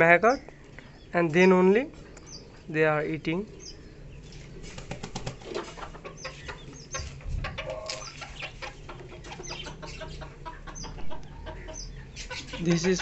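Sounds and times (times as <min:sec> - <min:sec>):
beaks tapping on concrete: 0:00.3 - 0:02.5, 0:03.6 - 0:13.0
chickens clucking softly: 0:05.2 - 0:13.0.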